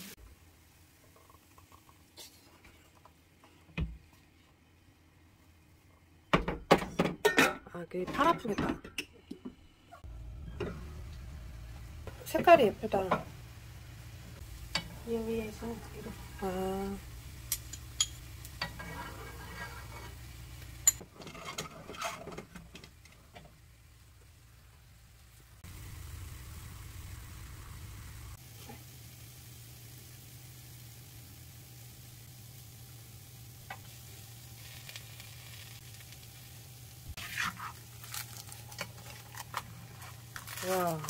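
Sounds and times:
steady low hum: 9.4s - 21.0s
batter sizzling in a pan: 12.0s - 41.0s
utensils tapping frying pan: 17.5s - 23.4s.

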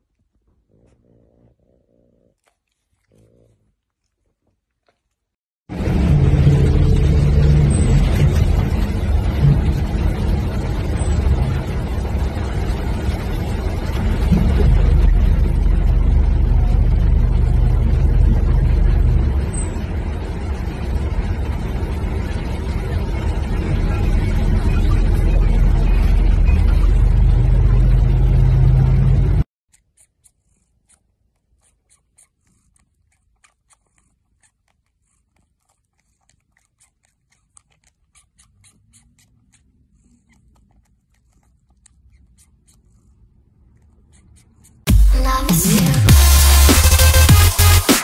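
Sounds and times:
vehicle engine and road rumble: 5.7s - 29.5s.

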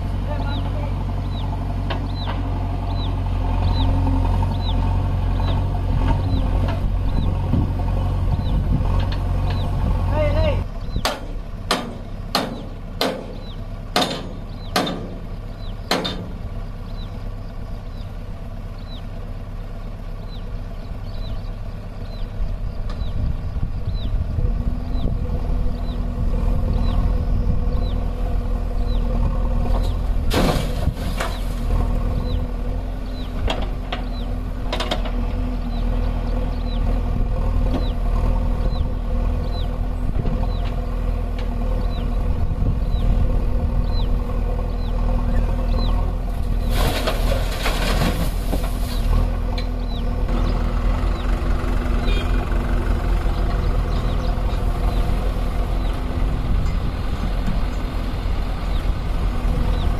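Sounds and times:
diesel engines running: 0.0s - 59.9s
sharp metal knocks: 11.0s - 15.2s, 15.9s - 16.4s.

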